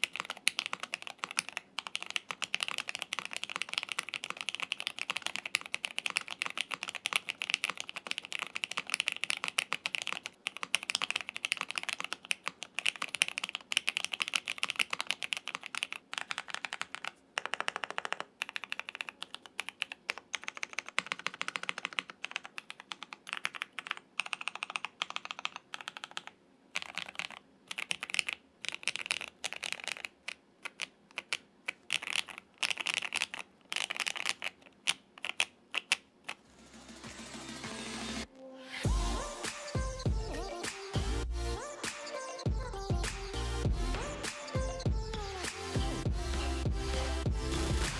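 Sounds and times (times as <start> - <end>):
typing on mechanical keyboard: 0.0 - 36.4.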